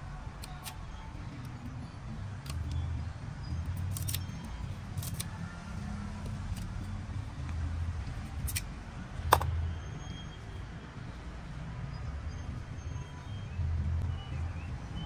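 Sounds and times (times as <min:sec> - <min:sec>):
pruning shears clicking: 0:03.8 - 0:04.3, 0:04.9 - 0:05.4.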